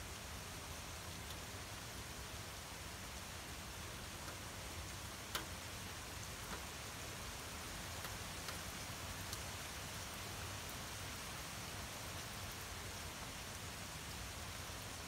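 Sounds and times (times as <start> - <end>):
gentle rain falling: 0.0 - 15.0
water drip ticks: 4.0 - 7.3, 7.9 - 9.5.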